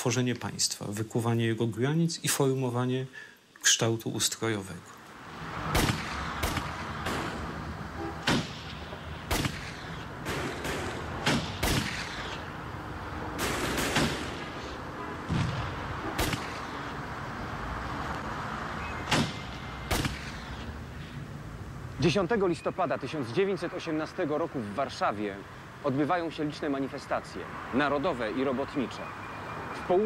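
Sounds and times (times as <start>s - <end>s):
steady background noise: 0.0s - 30.0s
gunshots with echo: 5.7s - 7.6s, 8.2s - 12.5s, 13.3s - 16.9s, 19.1s - 20.6s.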